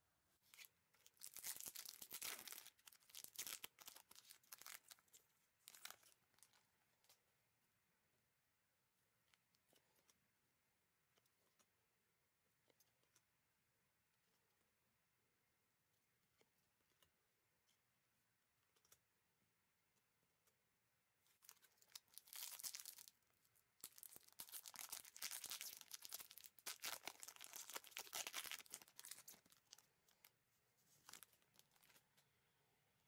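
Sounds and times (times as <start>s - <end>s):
wrapper tearing and crinkling: 1.1s - 5.0s, 21.4s - 23.1s, 23.8s - 30.2s.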